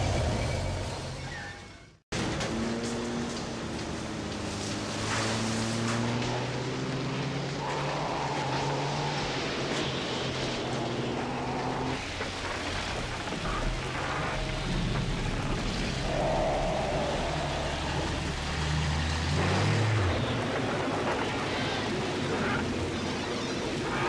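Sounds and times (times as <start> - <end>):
pouring rain hiss: 3.2 - 24.0.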